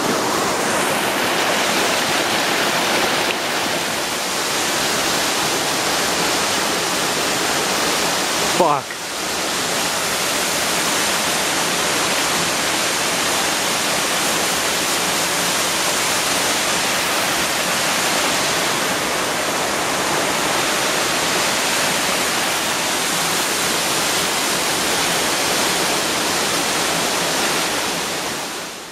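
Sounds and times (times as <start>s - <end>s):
waterfall rushing: 0.0s - 28.9s.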